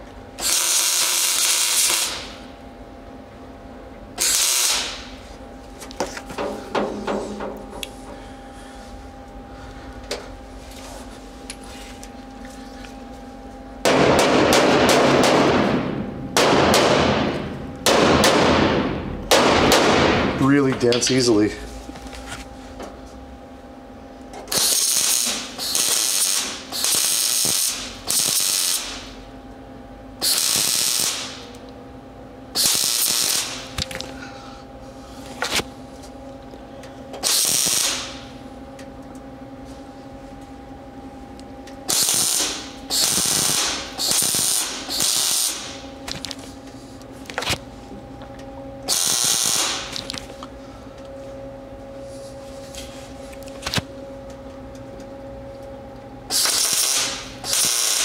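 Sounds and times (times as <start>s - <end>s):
steady hum: 0.0s - 58.0s
welder bursts: 0.4s - 2.4s, 4.2s - 5.1s, 24.5s - 29.2s, 30.2s - 31.5s, 32.6s - 33.9s, 37.2s - 38.2s, 41.9s - 46.2s, 48.9s - 50.2s, 56.3s - 58.0s.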